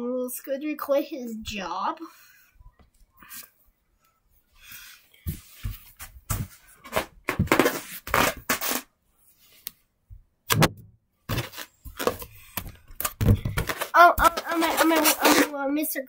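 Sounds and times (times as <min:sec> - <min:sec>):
objects being handled: 0:10.5 - 0:15.6.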